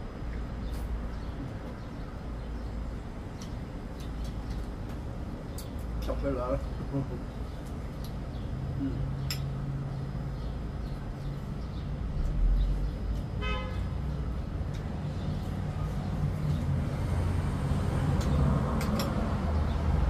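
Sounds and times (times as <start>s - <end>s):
street traffic rumbling: 0.0s - 20.0s
car horn toot: 13.4s - 13.9s
vehicle passing: 15.4s - 20.0s.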